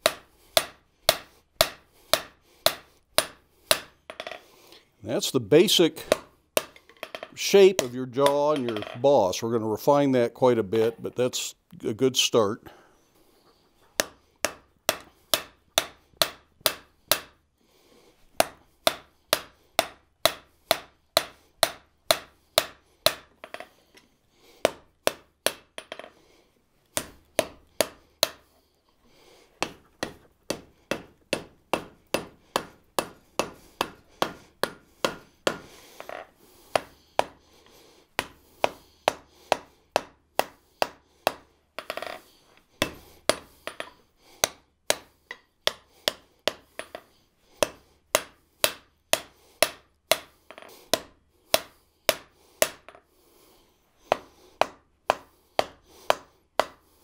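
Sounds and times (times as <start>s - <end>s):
hammer striking hot metal on anvil: 18.4s - 23.2s, 29.6s - 35.6s.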